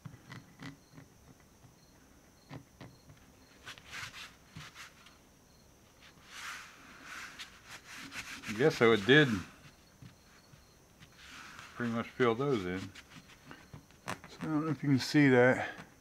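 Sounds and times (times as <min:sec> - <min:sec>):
paper towel rubbing on metal: 0:03.5 - 0:05.1, 0:06.0 - 0:15.8.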